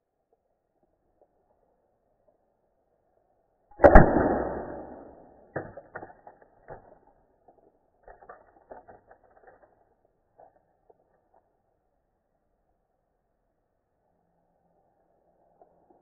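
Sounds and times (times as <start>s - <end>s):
air rifle shot: 3.8s - 5.3s.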